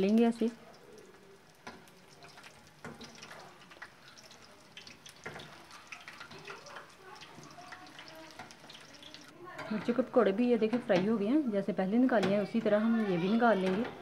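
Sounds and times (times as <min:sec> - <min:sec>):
food sizzling in hot oil: 0:00.0 - 0:14.0
metal tongs knocking pot: 0:09.5 - 0:11.3, 0:12.0 - 0:14.0.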